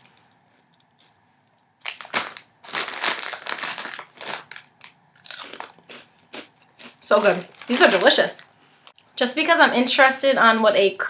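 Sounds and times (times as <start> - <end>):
plastic packaging crackling: 1.8 - 6.0, 7.0 - 8.4.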